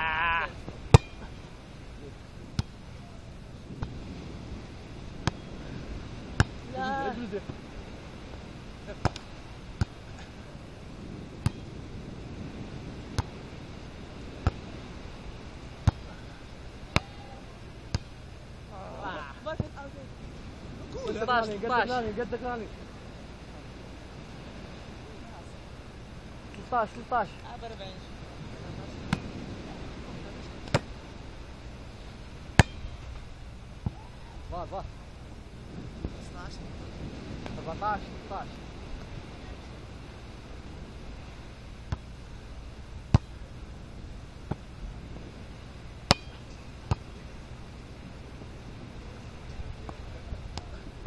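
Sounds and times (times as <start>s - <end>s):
steady background hiss: 0.0s - 51.0s
wind noise: 0.0s - 51.0s
volleyball being struck: 0.9s - 1.2s, 14.4s - 14.6s, 17.9s - 18.2s, 32.6s - 33.0s, 43.1s - 43.4s, 46.0s - 47.1s.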